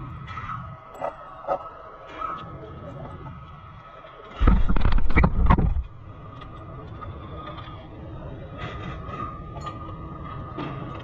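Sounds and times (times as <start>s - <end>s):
knocks and rumbling: 4.4s - 6.5s.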